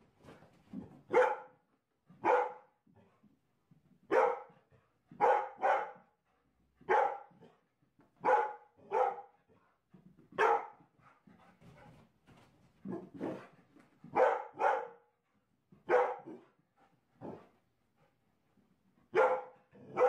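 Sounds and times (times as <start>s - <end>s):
dog barking: 1.1s - 1.6s, 2.2s - 2.8s, 4.1s - 4.6s, 5.2s - 6.2s, 6.8s - 7.5s, 8.2s - 9.4s, 10.4s - 10.8s, 14.1s - 15.1s, 15.8s - 16.5s, 19.1s - 20.0s.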